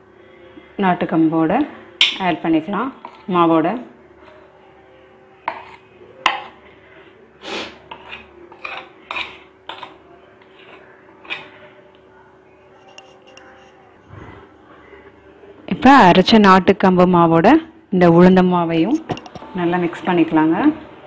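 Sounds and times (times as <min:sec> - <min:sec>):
spoon scraping and knocking a bowl: 0:03.0 - 0:03.3, 0:05.5 - 0:06.6, 0:07.9 - 0:11.6, 0:12.8 - 0:13.8.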